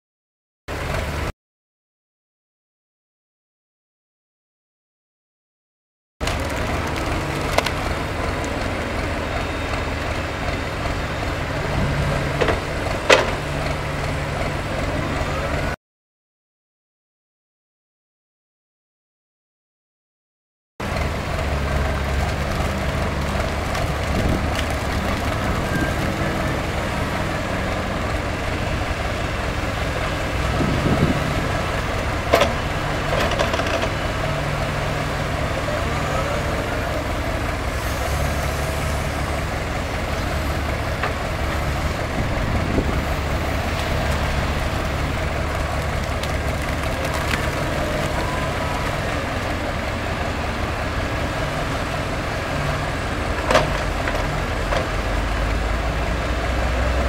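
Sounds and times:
excavator diesel engine under load: 0:00.7 - 0:01.3, 0:06.2 - 0:15.8, 0:20.8 - 0:57.0.

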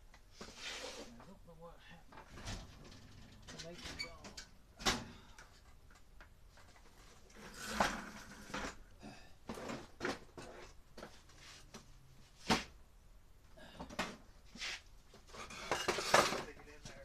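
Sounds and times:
items clattering in a box: 0:15.3 - 0:17.0.

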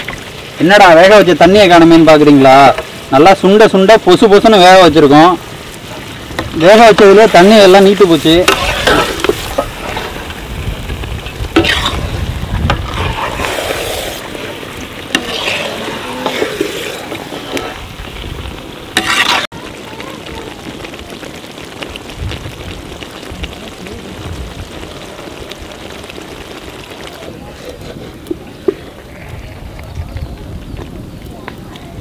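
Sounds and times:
gravy sizzling: 0:00.0 - 0:32.0
metal ladle scraping iron pan: 0:08.2 - 0:10.4, 0:11.5 - 0:17.9, 0:19.0 - 0:19.5.

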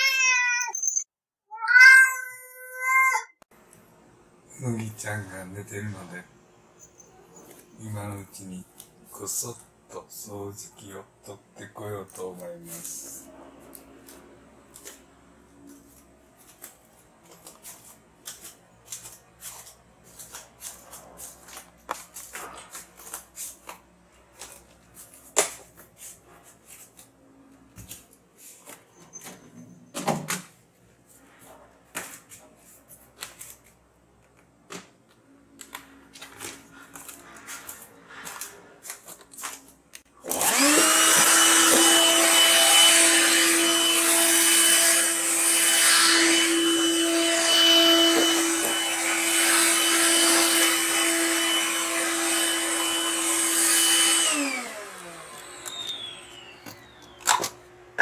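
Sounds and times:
vacuum cleaner running: 0:40.2 - 0:58.0.

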